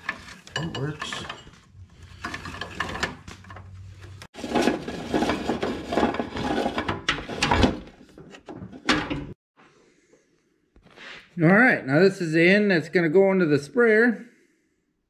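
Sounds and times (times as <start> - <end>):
handling noise rubbing and rustling: 0.0 - 9.4.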